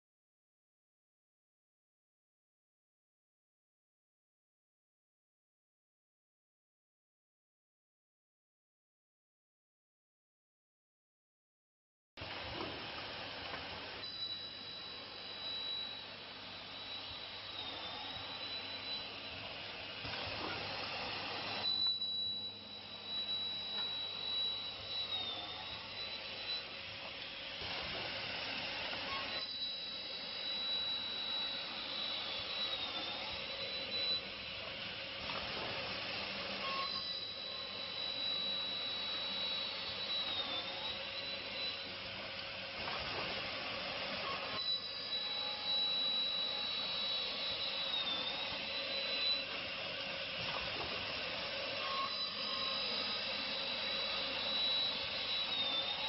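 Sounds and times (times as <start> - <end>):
machine high whine: 12.2 - 56.0.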